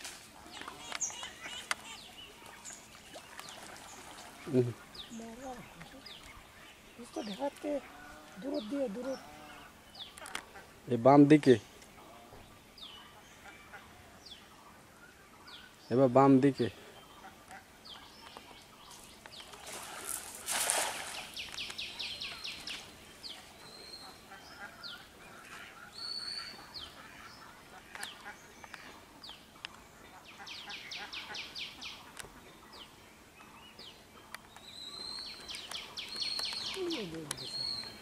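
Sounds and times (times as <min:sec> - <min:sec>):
birds chirping: 0:00.0 - 0:38.0
birds chattering: 0:00.3 - 0:38.0
net splashing on water: 0:19.5 - 0:21.4.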